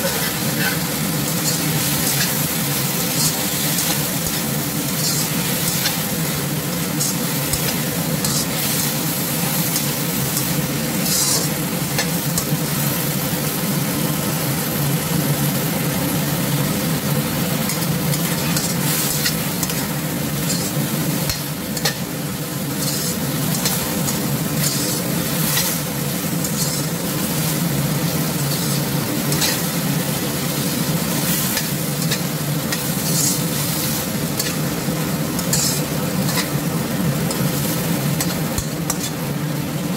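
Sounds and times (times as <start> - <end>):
spatula scraping a pan: 0.0 - 12.5, 17.7 - 29.8, 30.5 - 34.7, 35.4 - 36.6
food sizzling in a wok: 0.0 - 39.9.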